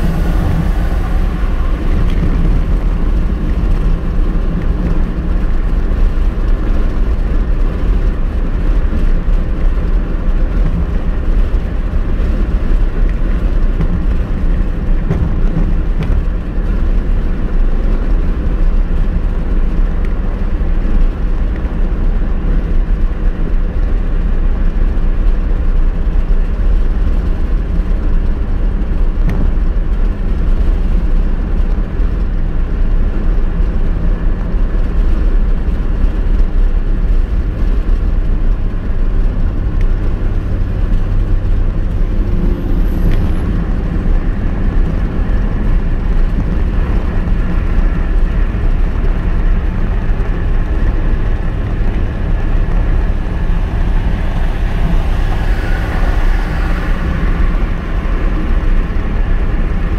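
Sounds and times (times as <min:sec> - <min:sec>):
car interior road noise: 0:00.0 - 0:59.9.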